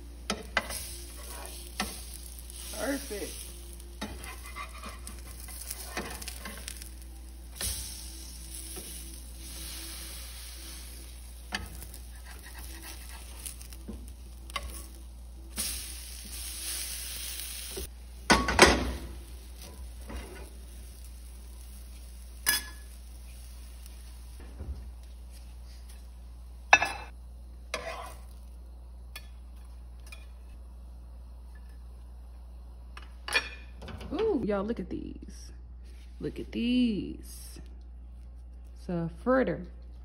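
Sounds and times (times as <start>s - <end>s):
fritters sizzling in oil: 0.0s - 30.6s
metal spatula scraping pan: 4.0s - 6.9s, 27.7s - 28.3s.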